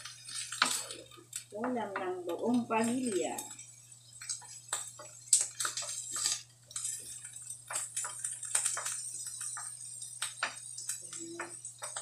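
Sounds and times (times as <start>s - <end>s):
frying sizzle: 0.0s - 12.0s
wooden spatula scraping a pan: 4.2s - 9.7s.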